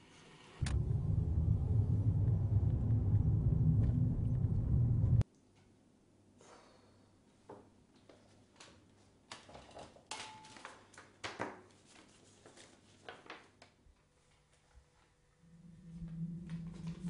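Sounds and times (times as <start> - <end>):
paper rustling and crinkling: 9.3 - 14.7.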